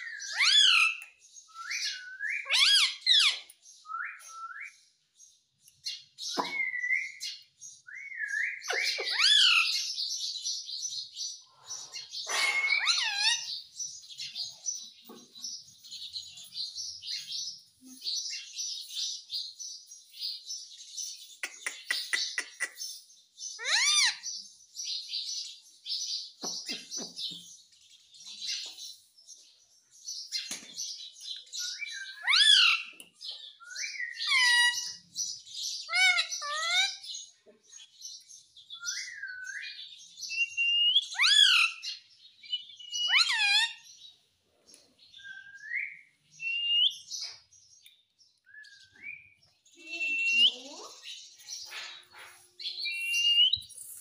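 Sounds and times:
parakeet whistled calls: 0:00.1 - 0:01.0, 0:01.6 - 0:04.7, 0:07.9 - 0:09.9, 0:12.2 - 0:13.5, 0:31.7 - 0:32.9, 0:33.7 - 0:35.0, 0:38.8 - 0:43.8, 0:45.2 - 0:47.2, 0:48.6 - 0:50.7, 0:52.8 - 0:54.0
parakeet high chirps: 0:00.2 - 0:01.0, 0:01.7 - 0:03.5, 0:08.6 - 0:09.9, 0:12.0 - 0:13.6, 0:23.6 - 0:24.2, 0:32.0 - 0:33.0, 0:34.1 - 0:35.1, 0:35.8 - 0:37.1, 0:40.3 - 0:43.9, 0:49.8 - 0:54.0.

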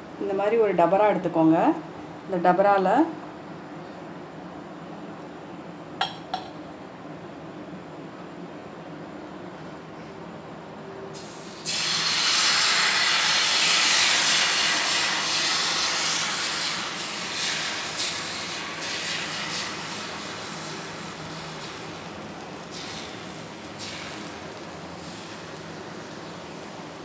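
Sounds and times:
batter sizzling on hot pan: 0:11.2 - 0:27.0.

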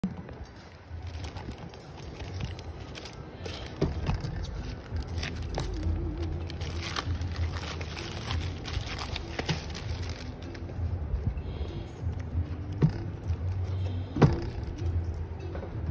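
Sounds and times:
steady low hum: 0:00.0 - 0:15.9
plastic bag crinkling: 0:00.4 - 0:10.9.

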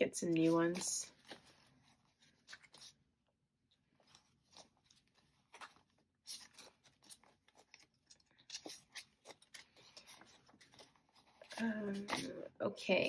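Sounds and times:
paper money rustling: 0:00.3 - 0:03.0, 0:03.8 - 0:12.4
plastic binder pockets crinkling: 0:00.3 - 0:03.0, 0:03.7 - 0:12.3.

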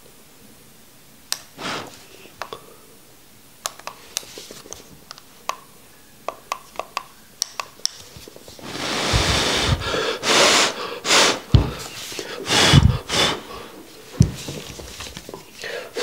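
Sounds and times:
person exhaling vapor: 0:01.6 - 0:02.8, 0:08.6 - 0:13.9.

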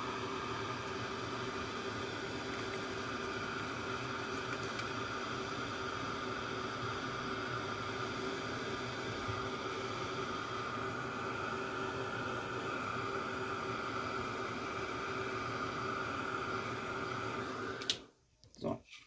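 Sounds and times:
heat tool blowing hot air: 0:00.0 - 0:18.0.

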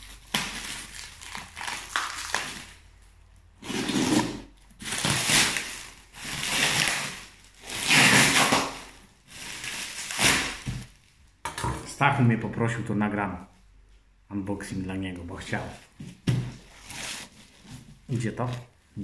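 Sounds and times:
plastic film crinkling and tearing: 0:00.0 - 0:11.3, 0:16.6 - 0:18.7.

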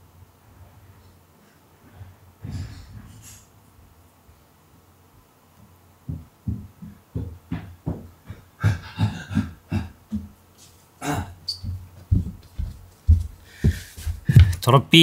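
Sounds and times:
footsteps thudding on floor: 0:06.1 - 0:08.4, 0:11.6 - 0:14.6.

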